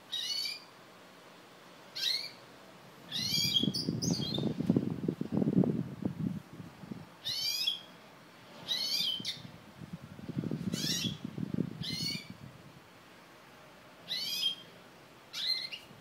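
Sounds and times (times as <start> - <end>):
finch twittering song: 0.1 - 0.7, 2.0 - 2.4, 3.1 - 4.6, 7.2 - 7.9, 8.7 - 9.5, 10.7 - 12.4, 14.1 - 14.7, 15.3 - 15.9.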